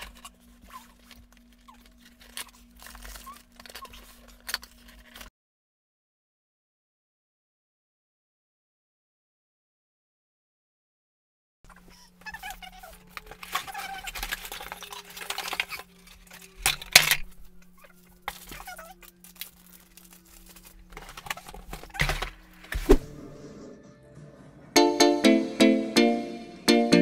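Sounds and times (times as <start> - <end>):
cardboard and plastic rustling: 0.0 - 5.3, 11.7 - 23.3.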